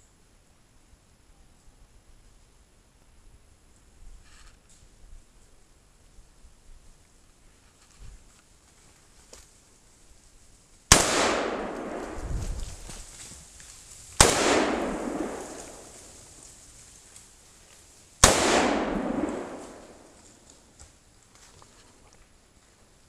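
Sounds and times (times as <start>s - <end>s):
gunshots: 10.9s - 12.3s, 14.2s - 16.1s, 18.2s - 20.2s.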